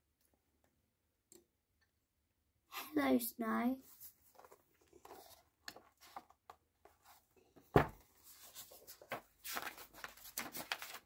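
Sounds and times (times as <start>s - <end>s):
book pages turning: 3.9s - 7.3s, 8.2s - 11.0s.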